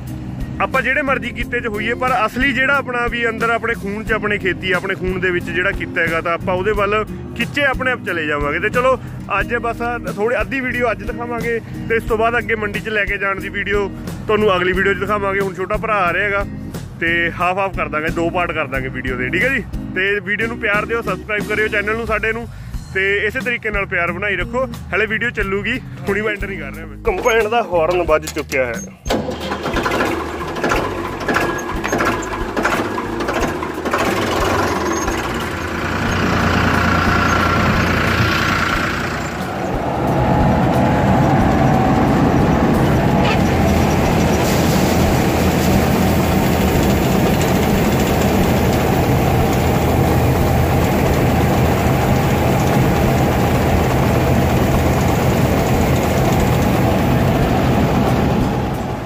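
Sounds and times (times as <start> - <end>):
tractor engine running: 0.0 - 22.4, 23.2 - 59.0
combine harvester engine and auger: 27.1 - 59.0.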